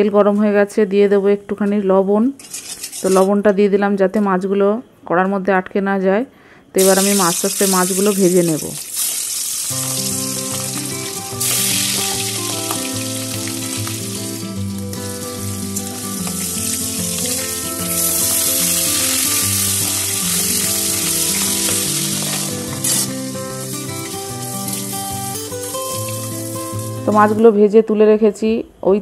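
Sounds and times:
fish frying in hot oil: 6.8s - 27.0s
instrumental background music: 9.0s - 27.6s.

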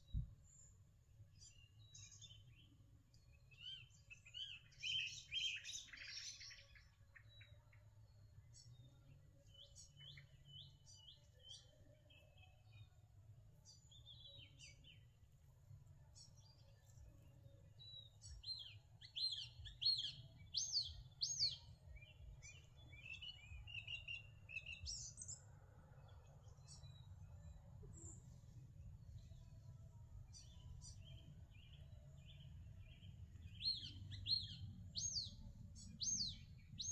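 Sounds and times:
small birds chirping: 0.0s - 13.0s, 13.6s - 15.3s, 16.1s - 36.9s.

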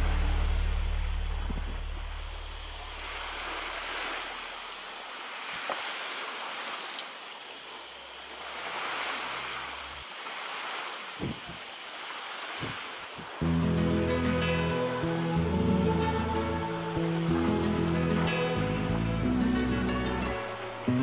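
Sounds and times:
low background music: 0.0s - 2.5s, 13.4s - 21.0s
insects chirring: 0.0s - 21.0s
small waves washing on rocks: 2.7s - 13.4s.

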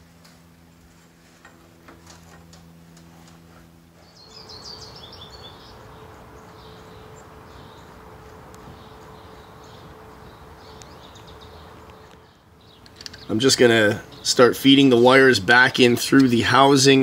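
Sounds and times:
steady electrical hum: 0.0s - 17.0s
electrical wire clicks and rustles: 0.2s - 3.7s, 10.7s - 13.4s
bird chirping: 4.0s - 15.2s.

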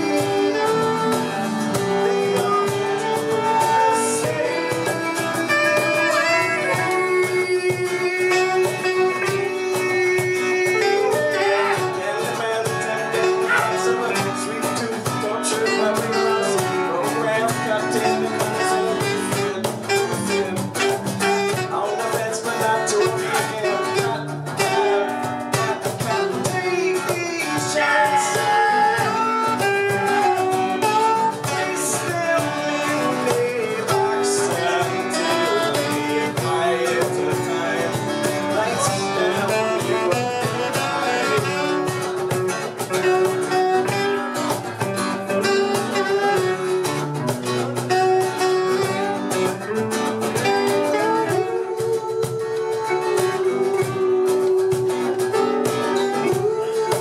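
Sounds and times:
live band music: 0.0s - 57.0s
strummed acoustic guitar: 0.0s - 57.0s.

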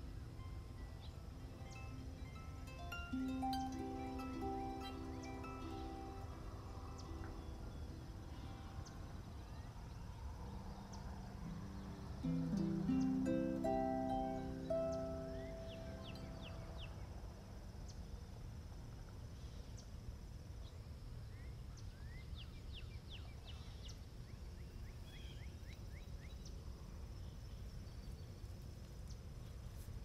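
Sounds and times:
harp notes ringing: 0.0s - 8.8s, 11.4s - 17.1s
small birds chirping: 0.0s - 18.3s
high insect drone: 0.0s - 21.5s.

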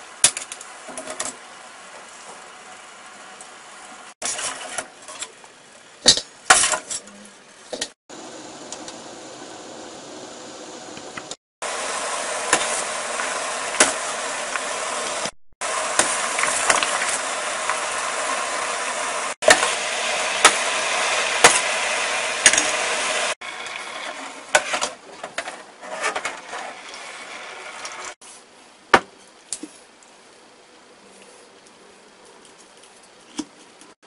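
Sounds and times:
sauce boiling in a pot: 8.1s - 24.6s.

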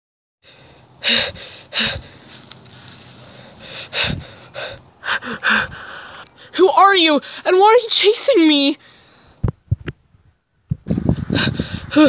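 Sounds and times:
person panting hard: 0.4s - 2.5s, 3.1s - 6.6s, 11.1s - 12.0s.

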